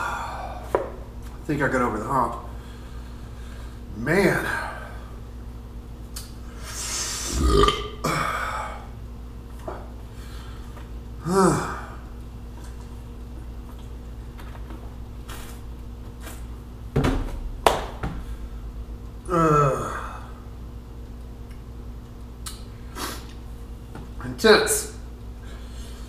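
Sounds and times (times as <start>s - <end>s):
man blowing out hard breaths: 6.6s - 8.9s
man burping: 7.2s - 8.8s, 11.2s - 12.0s, 19.2s - 20.3s.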